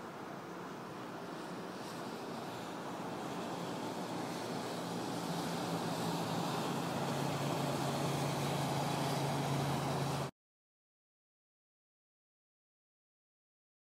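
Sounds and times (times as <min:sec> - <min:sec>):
road traffic passing: 0:00.0 - 0:10.3.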